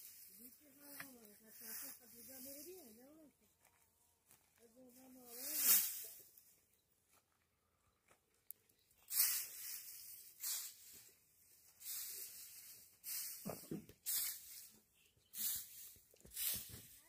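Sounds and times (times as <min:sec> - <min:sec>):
rake swishing through dry hay: 0:00.0 - 0:03.0, 0:04.9 - 0:06.4, 0:09.0 - 0:17.0.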